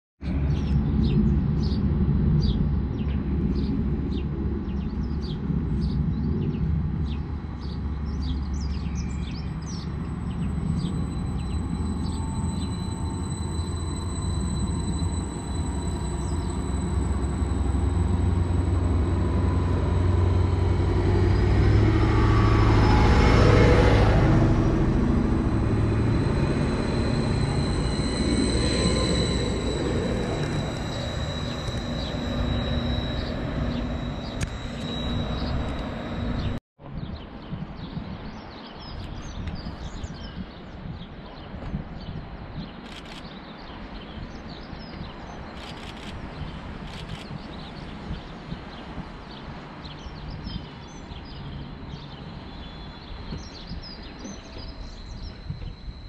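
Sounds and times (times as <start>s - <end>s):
rising whine: 0.2s - 36.6s, 44.2s - 56.0s
diesel train engine rumbling: 6.7s - 36.6s, 51.4s - 56.0s
short high chirps: 9.0s - 36.6s.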